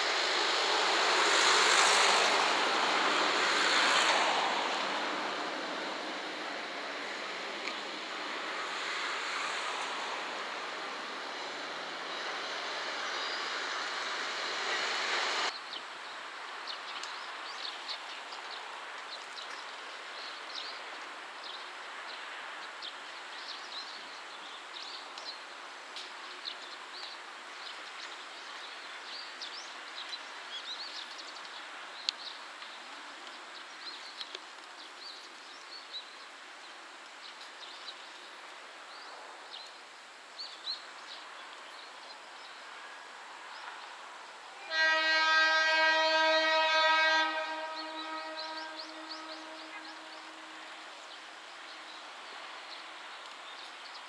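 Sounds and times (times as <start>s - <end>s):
outdoor hiss: 0.0s - 54.0s
railcar horn blast: 44.6s - 51.0s.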